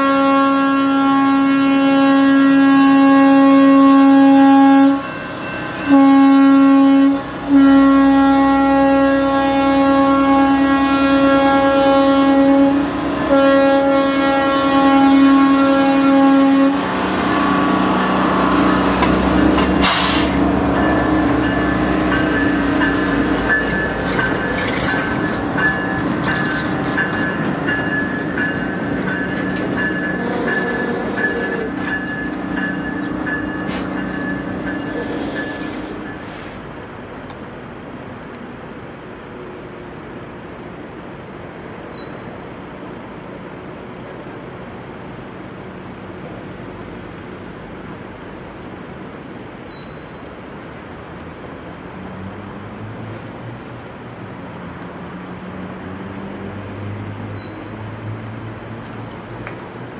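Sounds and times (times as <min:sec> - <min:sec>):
locomotive horn blasts: 0:00.0 - 0:16.9, 0:29.6 - 0:32.3
crossing bell dinging: 0:05.0 - 0:05.9, 0:20.6 - 0:36.4
train clattering over rails: 0:16.8 - 0:38.6.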